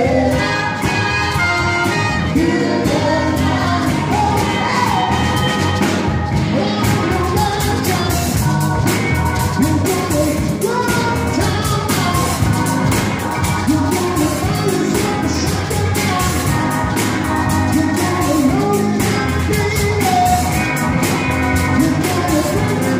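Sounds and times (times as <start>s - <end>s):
horns: 0.0s - 6.5s
live band playing upbeat song: 0.0s - 22.9s
person singing: 0.0s - 22.9s.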